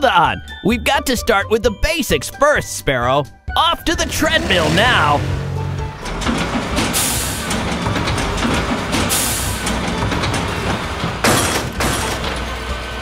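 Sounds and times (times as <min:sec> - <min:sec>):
cartoon background music: 0:00.0 - 0:13.0
loud rushes of noise: 0:04.4 - 0:13.0.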